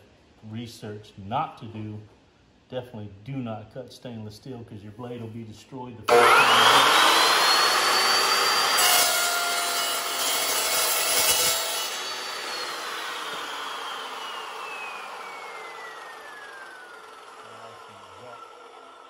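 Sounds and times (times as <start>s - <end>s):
chop saw cutting steel: 6.1s - 19.0s
saw blade winding down: 6.1s - 19.0s.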